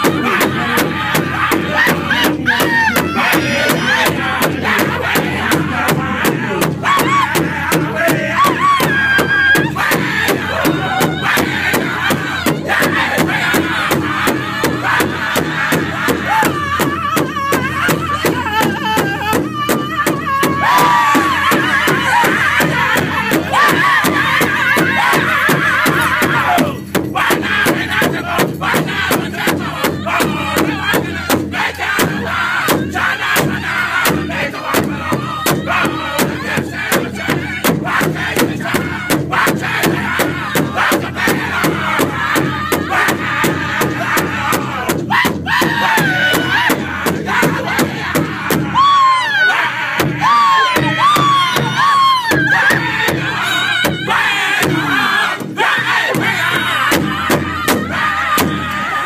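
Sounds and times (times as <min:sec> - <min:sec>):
group singing in high voices: 0:00.0 - 0:59.0
large drum beating: 0:00.0 - 0:59.0.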